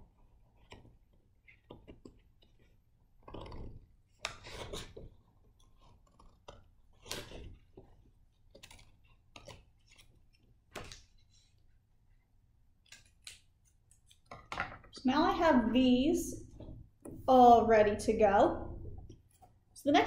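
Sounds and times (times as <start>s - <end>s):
scissors snipping paper: 4.2s - 11.2s, 12.8s - 14.3s
paper rustling: 4.2s - 11.7s.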